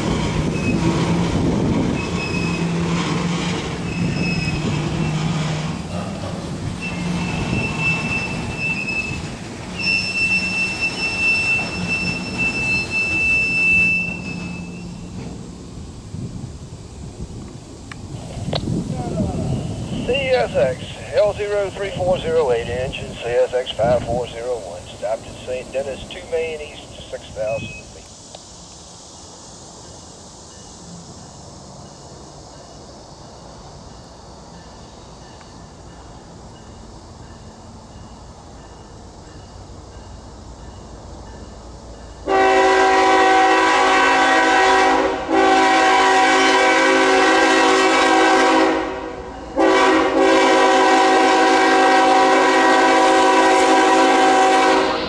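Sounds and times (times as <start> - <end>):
train rumbling past: 0.0 - 55.0
locomotive air horn blasts: 42.2 - 55.0.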